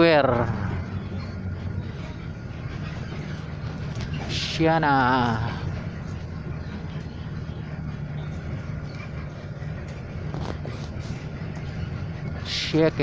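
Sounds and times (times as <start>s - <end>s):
road noise: 0.0s - 13.0s
vehicle engine hum: 0.0s - 13.0s.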